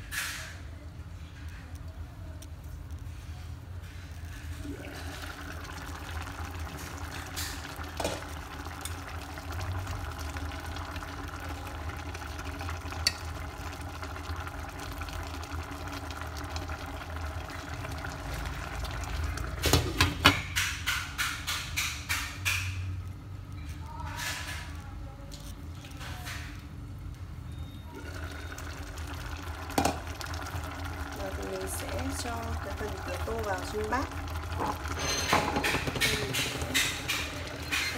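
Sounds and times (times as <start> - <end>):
sauce bubbling in a pot: 0.3 - 24.8, 26.4 - 37.9
utensil clinking against pot: 34.9 - 37.9.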